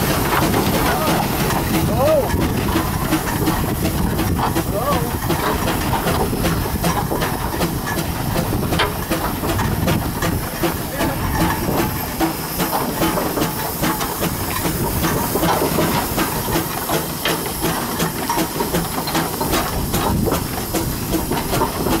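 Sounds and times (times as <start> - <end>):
steam engine chuffing and hissing: 0.0 - 22.0.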